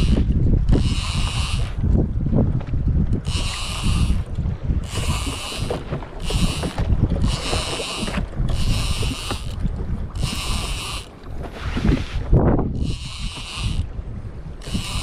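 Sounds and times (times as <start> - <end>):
fishing reel whirring: 0.0 - 2.0, 3.1 - 11.2, 12.7 - 15.0
wind and water rumble: 0.0 - 15.0.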